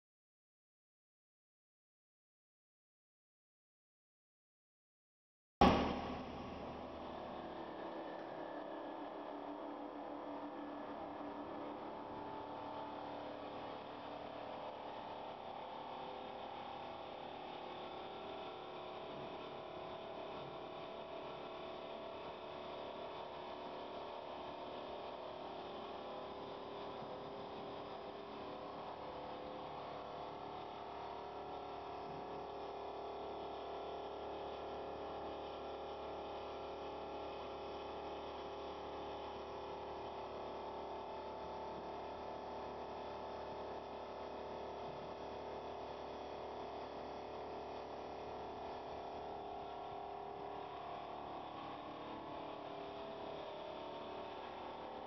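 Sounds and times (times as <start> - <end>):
polishing machine hum and whine: 5.6 - 37.0.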